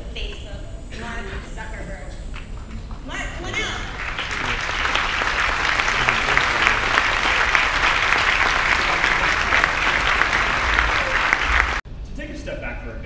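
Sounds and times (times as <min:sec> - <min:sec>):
large audience applauding: 0:02.4 - 0:11.8.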